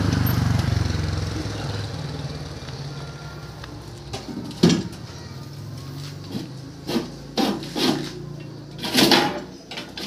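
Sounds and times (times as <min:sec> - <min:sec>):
diesel engine running: 0:00.0 - 0:04.6.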